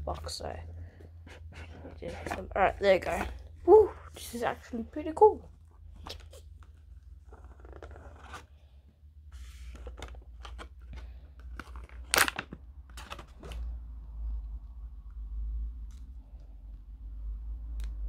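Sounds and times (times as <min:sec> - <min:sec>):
cardboard rustling and scraping: 0:01.0 - 0:04.7, 0:05.7 - 0:08.6, 0:09.3 - 0:12.1.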